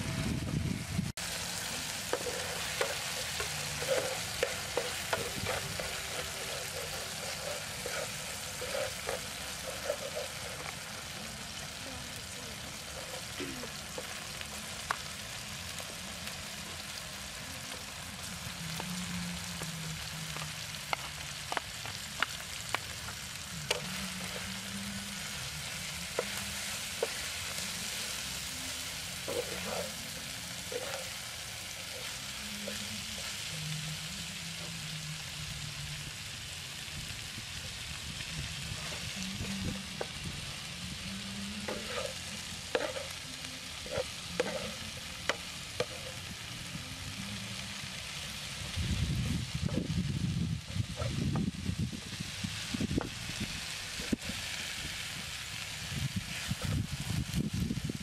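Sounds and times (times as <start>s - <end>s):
food sizzling in a frying pan: 0.0s - 58.0s
spatula scraping a pan: 1.5s - 11.2s, 23.2s - 33.5s, 38.6s - 40.2s, 41.6s - 46.3s.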